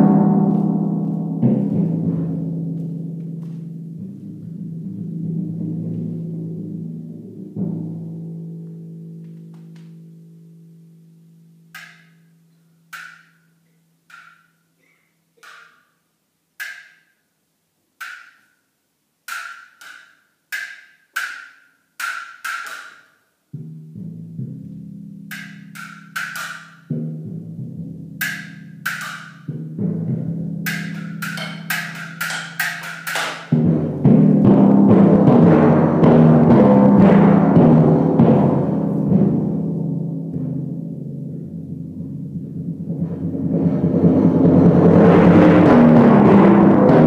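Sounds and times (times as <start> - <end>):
timpani playing: 0.0 - 9.0, 23.6 - 47.0
mallet clicks: 30.7 - 33.6.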